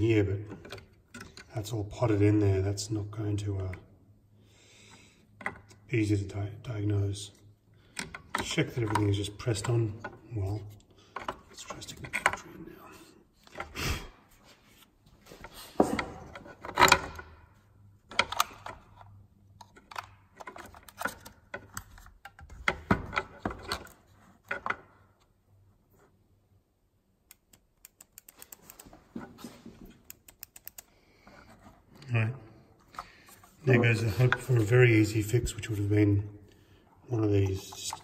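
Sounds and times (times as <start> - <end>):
small evenly spaced clicks: 27.3 - 28.9, 30.0 - 30.9.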